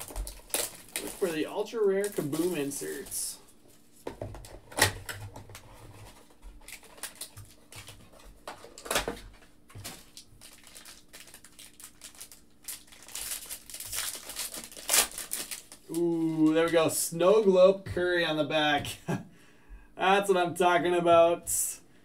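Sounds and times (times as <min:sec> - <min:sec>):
foil wrapper crinkling: 0:00.0 - 0:03.9, 0:05.0 - 0:08.9, 0:09.7 - 0:16.8.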